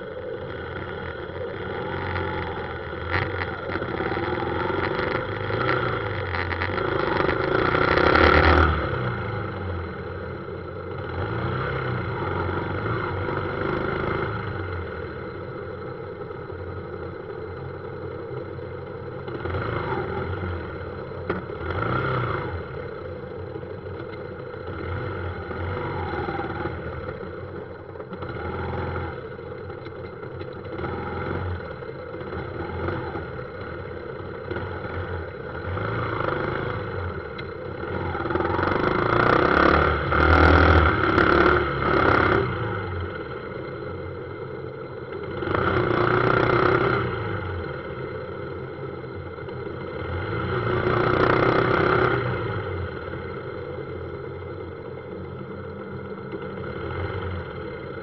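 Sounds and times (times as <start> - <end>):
motorbike engine revving: 0.0 - 15.2, 30.3 - 58.0
traffic noise: 0.0 - 58.0.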